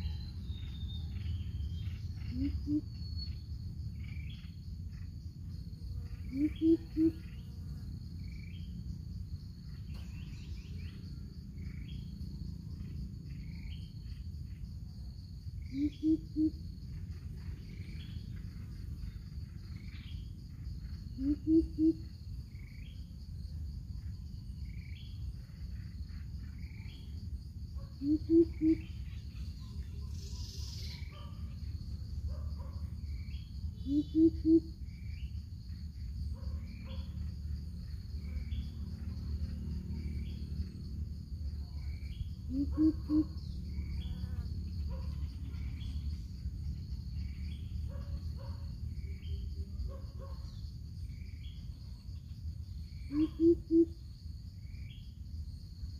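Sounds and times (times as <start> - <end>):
small bird chirps: 0.0 - 7.5, 9.6 - 12.2, 15.6 - 23.1, 28.0 - 31.8, 32.6 - 37.2
high insect drone: 0.0 - 55.9
bird hooting deeply: 2.2 - 3.0, 6.2 - 7.4, 15.7 - 16.6, 21.2 - 22.0, 28.0 - 29.0, 33.8 - 34.8, 42.5 - 43.4, 53.1 - 54.0.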